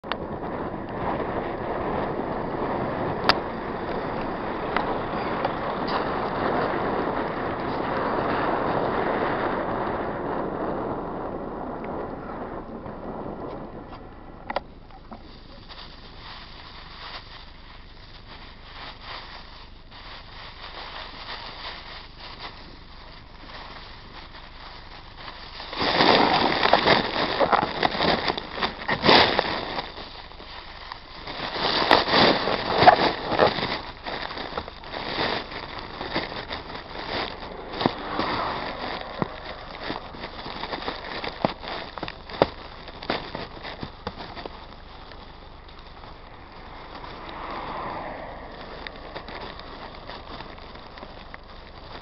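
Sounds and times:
wind noise on camera: 0.0s - 52.0s
small rattles and clicks: 13.4s - 47.4s, 48.5s - 52.0s
cars passing: 35.3s - 41.1s, 45.1s - 51.8s.

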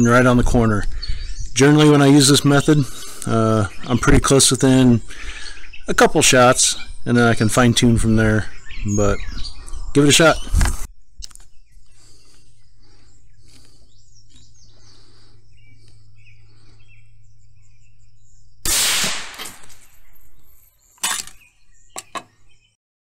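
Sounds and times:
birds chirping: 0.0s - 22.8s
rifle shot: 18.6s - 19.9s.

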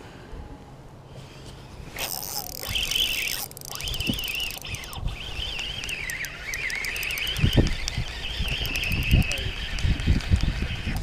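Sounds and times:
songbird warbling: 2.1s - 10.1s.

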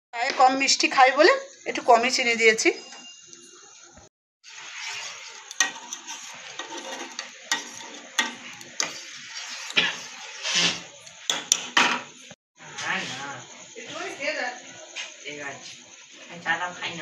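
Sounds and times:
boiling hiss: 4.5s - 17.0s
spoon clinking against pan: 5.0s - 10.2s.

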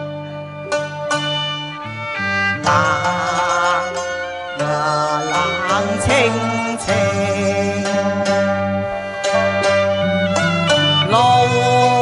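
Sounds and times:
bowed string melody: 0.0s - 12.0s
traditional instrument ensemble playing: 0.0s - 12.0s.

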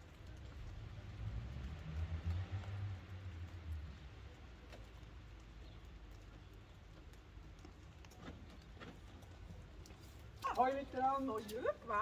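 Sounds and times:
faint clicks and knocks: 3.4s - 10.7s.

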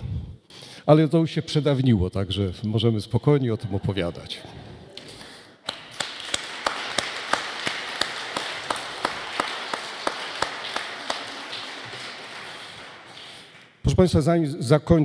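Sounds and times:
close person clapping: 4.9s - 13.8s
audience applauding: 5.0s - 13.8s.

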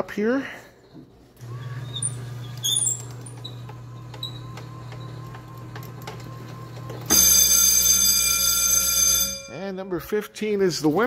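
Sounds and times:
drive motor humming: 1.4s - 7.1s
loud buzzing alarm: 7.1s - 9.6s.

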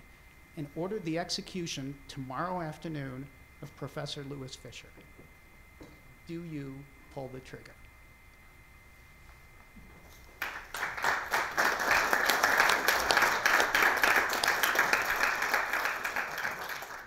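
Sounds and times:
audience applauding: 10.4s - 17.0s.

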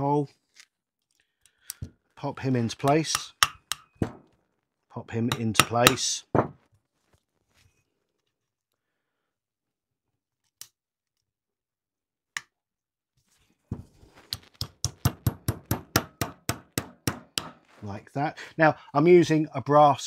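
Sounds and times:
hammer tapping steel pin: 2.8s - 4.2s, 5.3s - 6.0s, 14.4s - 17.6s.

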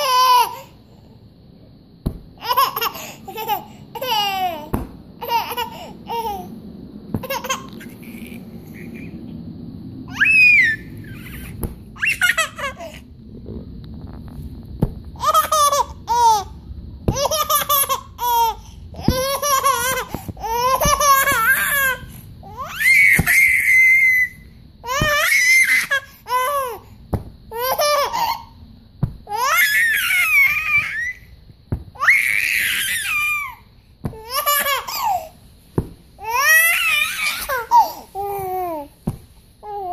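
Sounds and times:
baby laughing and giggling: 0.0s - 0.8s, 2.4s - 6.5s, 7.2s - 9.2s, 10.1s - 13.0s, 15.2s - 23.9s, 27.5s - 28.6s, 32.0s - 35.3s, 36.2s - 38.9s
baby squealing: 10.1s - 13.0s, 17.1s - 26.8s, 29.3s - 31.3s, 32.0s - 35.3s, 36.2s - 38.9s.

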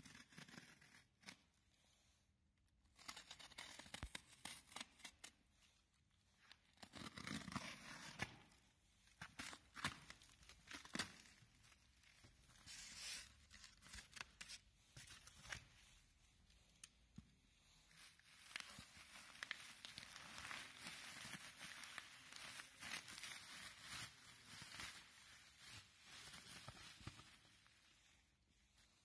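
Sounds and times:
bubble wrap crinkling: 6.2s - 17.0s, 17.6s - 29.0s
stretch wrap and tape tearing: 6.4s - 15.7s.

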